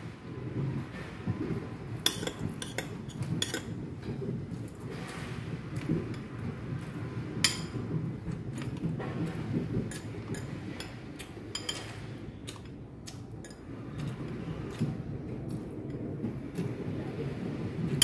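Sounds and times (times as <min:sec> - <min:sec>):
cutlery scraping ceramic bowl: 0:02.1 - 0:03.8, 0:09.9 - 0:12.7.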